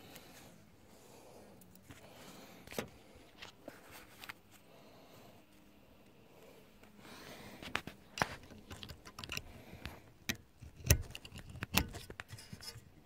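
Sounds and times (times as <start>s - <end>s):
plastic and metal parts clicking: 7.7s - 12.8s.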